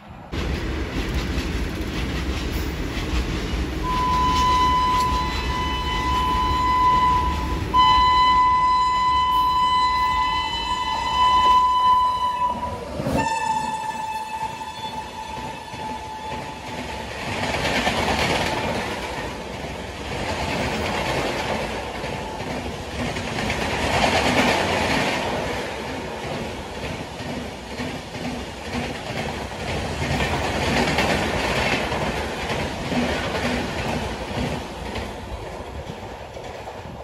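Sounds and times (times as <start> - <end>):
train rushing past: 0.0 - 37.0
wheels clacking over rail joints: 0.4 - 6.4, 15.1 - 37.0.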